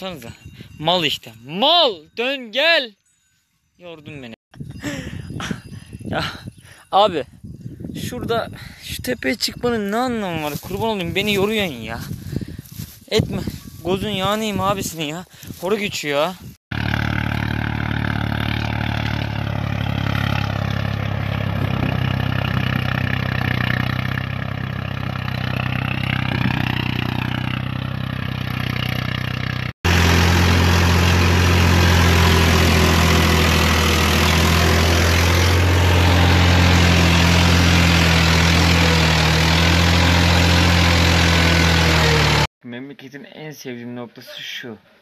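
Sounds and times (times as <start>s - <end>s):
tractor engine under load: 16.7s - 42.5s
quiet engine with wavering pitch: 16.8s - 42.5s.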